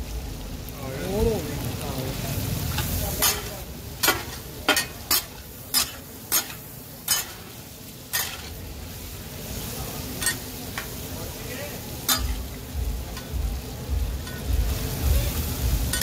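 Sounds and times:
meat sizzling: 0.0s - 16.0s
metal spatula scraping griddle: 2.7s - 8.7s, 14.2s - 14.5s, 15.3s - 16.0s.

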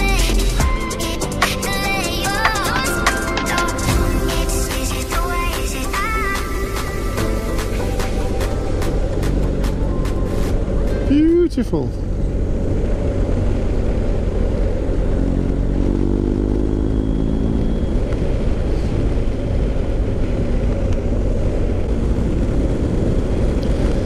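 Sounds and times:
motorcycle engine running: 0.0s - 24.0s
riding noise rush: 0.0s - 24.0s.

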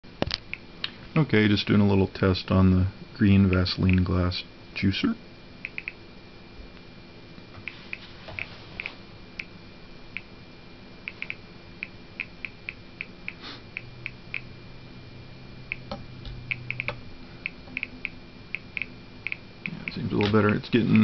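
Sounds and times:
geiger counter clicking: 3.4s - 4.1s, 5.6s - 6.0s, 10.1s - 10.3s, 11.1s - 14.5s, 15.7s - 21.0s.

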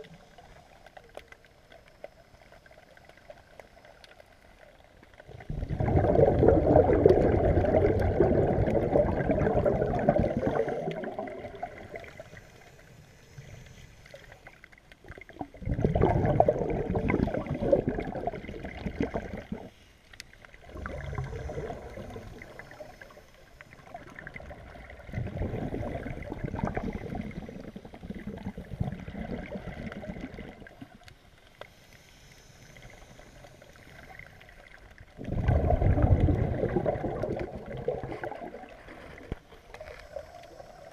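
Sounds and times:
underwater diver exhaling bubbles: 5.2s - 12.4s, 15.0s - 19.8s, 20.6s - 31.1s, 35.1s - 40.9s.

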